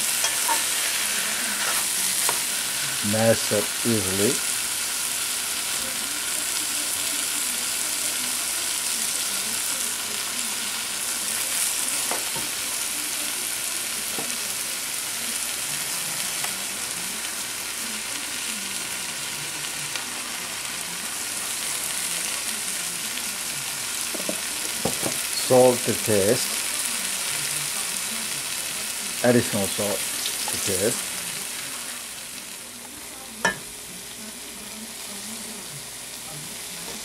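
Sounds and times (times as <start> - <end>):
potatoes sizzling in a frying pan: 0.0 - 37.0.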